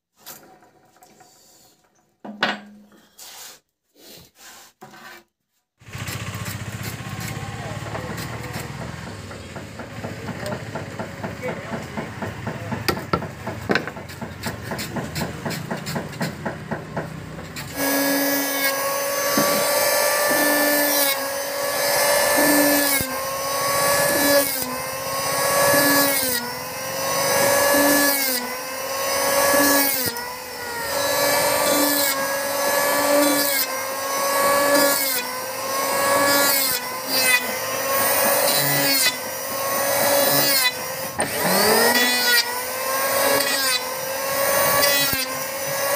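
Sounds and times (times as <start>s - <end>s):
electric hand planer: 5.8s - 45.9s
hammer tapping chisel: 6.8s - 17.6s.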